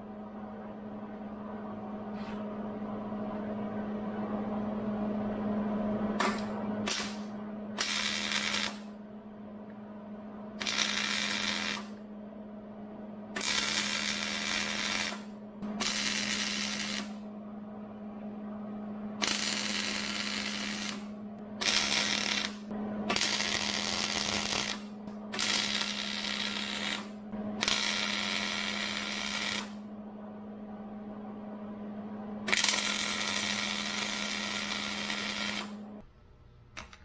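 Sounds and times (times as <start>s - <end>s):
steady hum: 0.0s - 37.0s
welder arc bursts: 6.8s - 8.9s, 10.6s - 11.9s, 13.4s - 17.2s, 19.2s - 29.8s, 32.5s - 35.7s.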